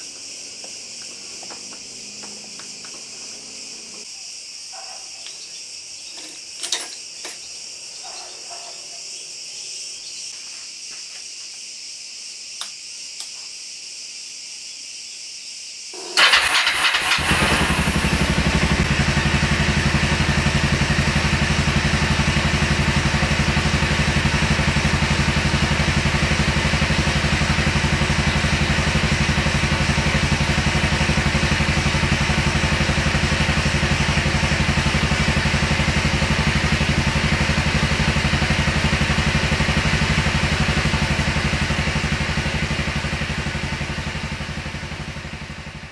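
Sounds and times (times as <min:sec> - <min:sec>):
motorcycle engine idling: 0:00.0 - 0:04.1, 0:16.0 - 0:45.9
electric starter cranking: 0:16.0 - 0:19.0.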